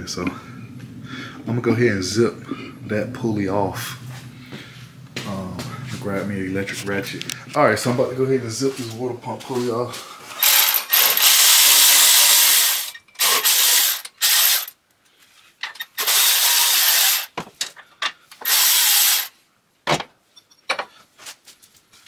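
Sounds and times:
electric ratchet spinning: 0:10.4 - 0:14.8, 0:15.6 - 0:17.4, 0:18.4 - 0:19.3.

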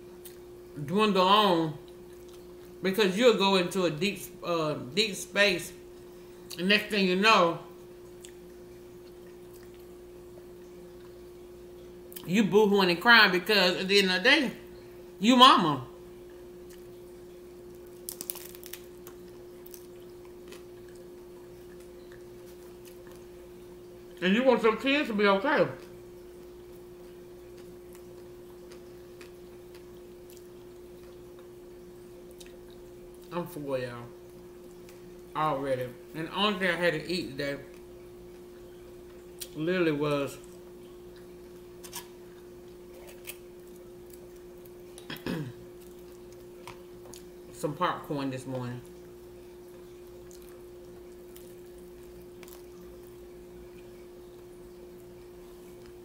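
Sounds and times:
steady low hum: 0:00.0 - 0:56.0
crunching and chewing taco: 0:01.8 - 0:02.8, 0:07.8 - 0:11.3, 0:16.2 - 0:24.2, 0:25.7 - 0:33.5, 0:40.2 - 0:47.6, 0:48.6 - 0:56.0.

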